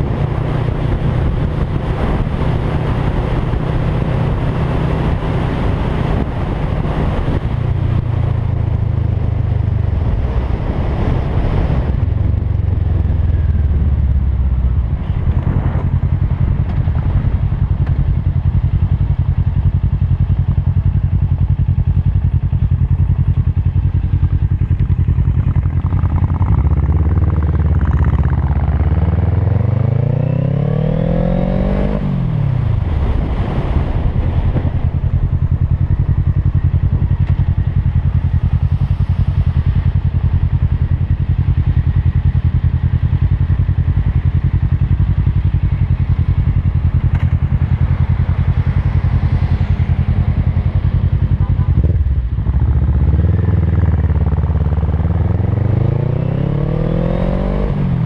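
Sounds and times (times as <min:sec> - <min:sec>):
wind rush: 0:00.0 - 0:19.2, 0:23.8 - 0:42.2
motorcycle engine revving: 0:00.0 - 0:58.0.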